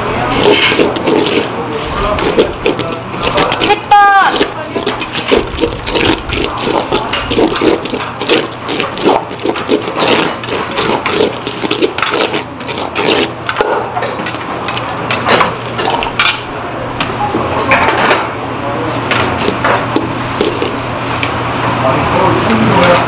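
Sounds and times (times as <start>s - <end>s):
plastic spatula scraping a metal pot: 0.3s - 13.4s.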